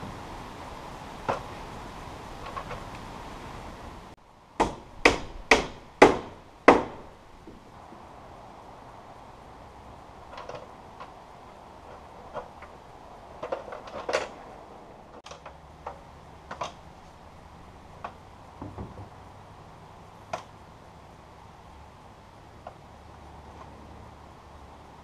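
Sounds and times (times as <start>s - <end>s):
boots knocking on wooden roofing: 18.6s - 19.2s.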